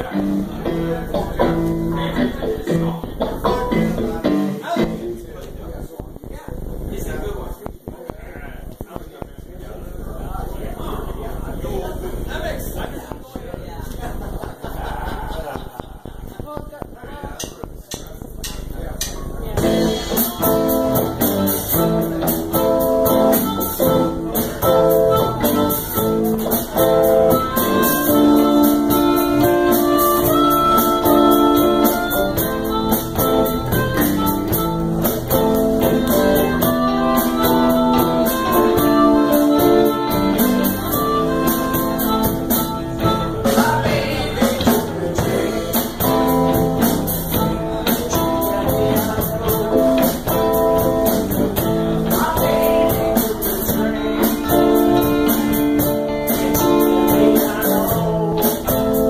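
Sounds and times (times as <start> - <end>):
live blues band playing: 0.0 - 5.8, 18.2 - 59.0.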